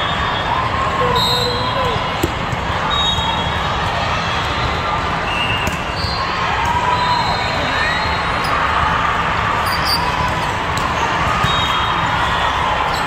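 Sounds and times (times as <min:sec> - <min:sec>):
crowd chatter: 0:00.0 - 0:13.0
volleyballs being hit: 0:02.0 - 0:02.8.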